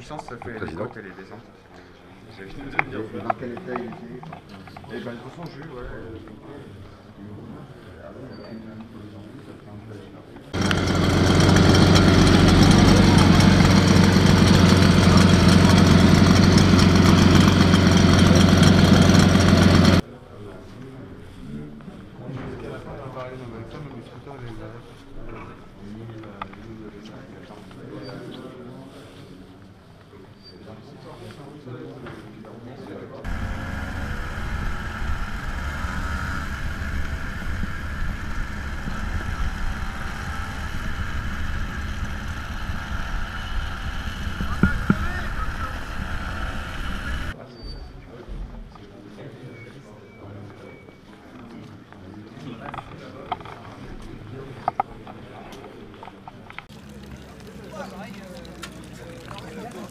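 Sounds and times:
moped engine fast idle: 10.6 - 20.0, 33.3 - 47.4.

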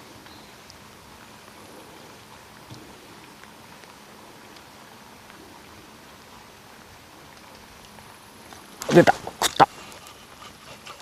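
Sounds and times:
soft ticks of raindrops: 0.0 - 10.4
light rain on a pond: 0.0 - 11.0.

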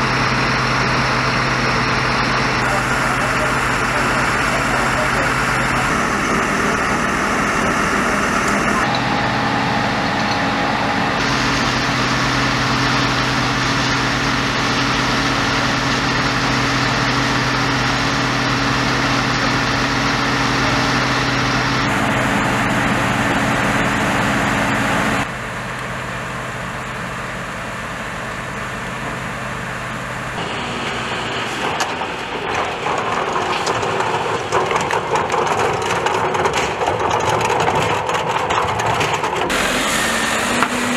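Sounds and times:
fire engine pump humming: 0.0 - 40.9
rushing fire and hose water: 0.0 - 40.9
knocks and clatter of hoses: 31.4 - 39.6.

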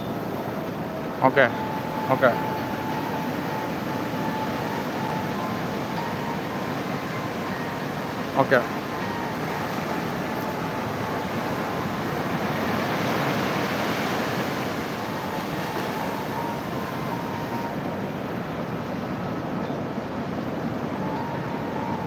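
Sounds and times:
waves washing onto beach: 0.0 - 22.0.

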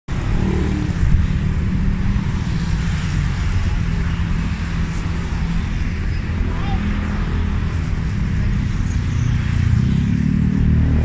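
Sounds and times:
city traffic rumble: 0.1 - 11.0.

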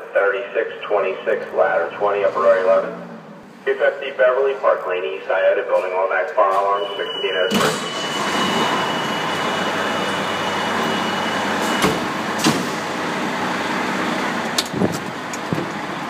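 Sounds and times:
diesel engine running: 0.0 - 3.9, 7.9 - 16.0.

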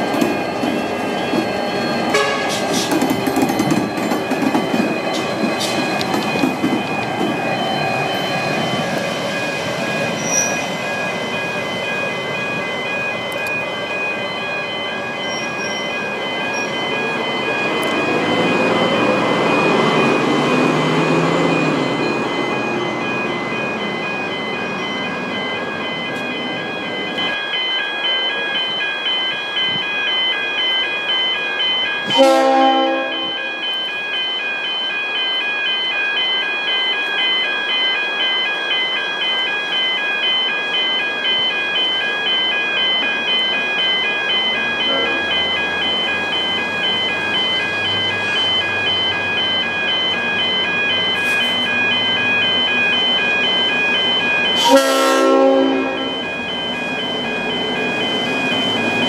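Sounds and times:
crossing warning bells: 0.0 - 59.0
train horn blasts: 2.1 - 2.6, 32.1 - 33.4, 44.9 - 45.2, 54.6 - 56.2.

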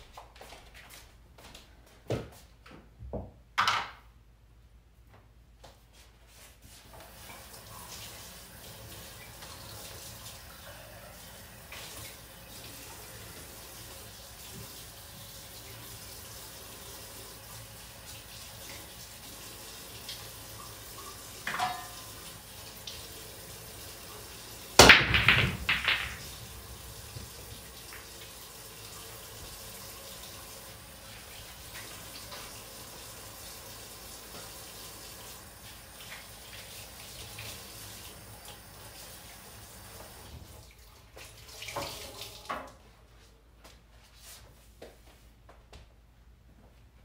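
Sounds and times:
pool break shot: 24.8 - 26.3.

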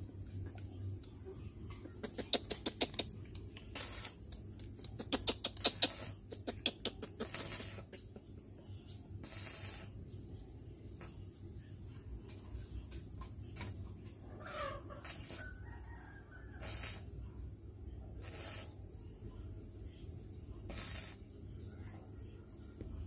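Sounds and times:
palms rubbing hiss: 2.1 - 8.2, 9.1 - 10.1, 14.7 - 15.6, 16.6 - 17.2, 18.1 - 18.9, 20.6 - 21.3.

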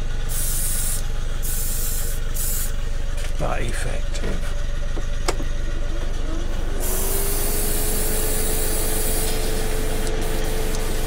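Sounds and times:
steady whine: 0.0 - 11.0
airbrush hissing: 0.3 - 2.8, 6.8 - 11.0.

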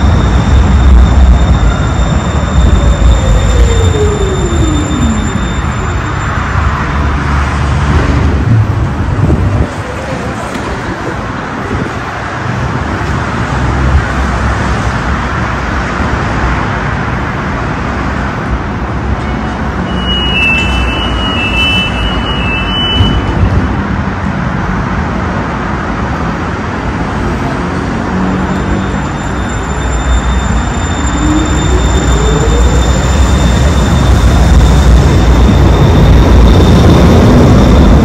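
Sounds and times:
high beeping tones: 0.0 - 6.4, 19.8 - 23.7
city street traffic: 0.0 - 38.0.

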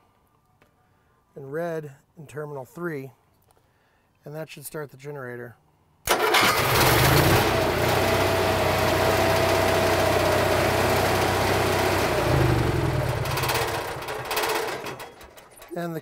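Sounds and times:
generator engine running: 6.1 - 16.0.

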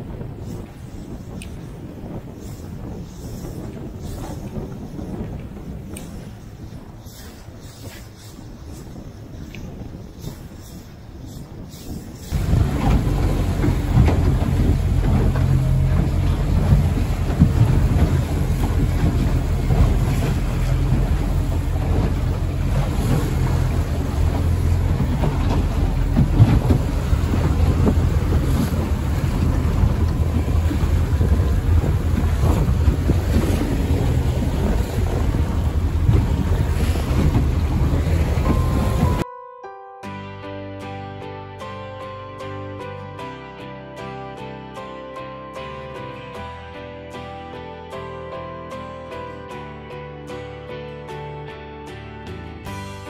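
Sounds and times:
waves rushing and splashing: 0.0 - 39.2
wind buffeting microphone: 0.0 - 39.2
boat engine hum: 0.0 - 39.5, 40.5 - 53.0.

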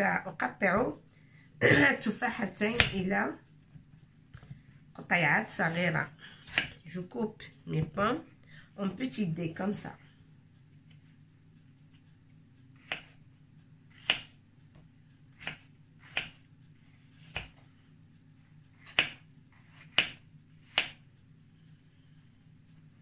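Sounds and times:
knife chopping on wooden board: 12.8 - 13.2, 13.9 - 14.4, 15.4 - 16.4, 17.2 - 17.6, 18.8 - 21.0.

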